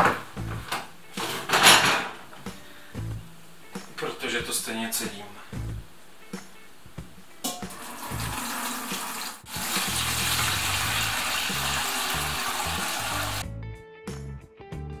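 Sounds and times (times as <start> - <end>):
liquid pouring into metal strainer: 7.7 - 13.3.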